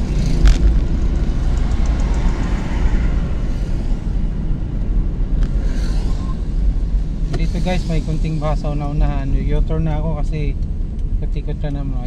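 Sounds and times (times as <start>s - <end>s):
car road and engine rumble: 0.0s - 12.0s.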